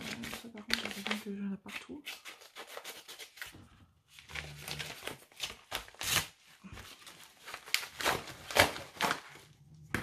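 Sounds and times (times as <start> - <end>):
plastic packaging crinkling: 0.0 - 1.5, 4.1 - 9.6.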